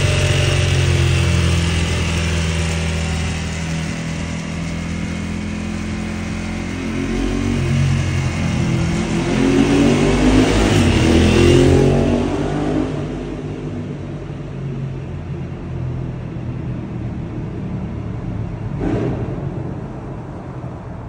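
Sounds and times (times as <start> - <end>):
motorcycle engine revving: 0.0 - 14.4, 18.7 - 20.6.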